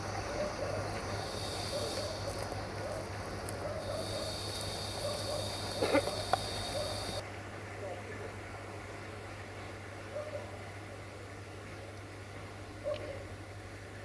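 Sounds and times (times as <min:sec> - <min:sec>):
high whistling whine: 0:00.0 - 0:03.2, 0:03.8 - 0:07.2
diesel locomotive engine drone: 0:00.0 - 0:07.2.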